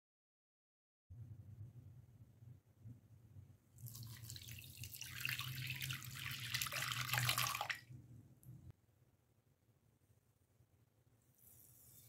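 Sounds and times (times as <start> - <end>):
milk pouring into glass bowl: 3.8 - 7.8.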